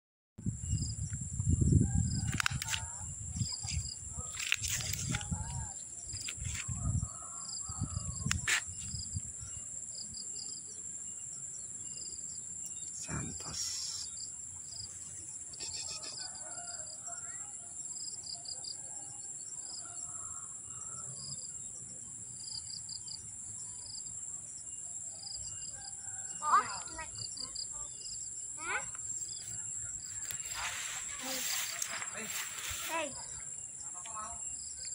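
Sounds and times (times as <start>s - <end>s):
cricket-like chirps: 0.4s - 34.9s
insect drone: 0.4s - 34.9s
faint bird calls: 15.5s - 16.4s.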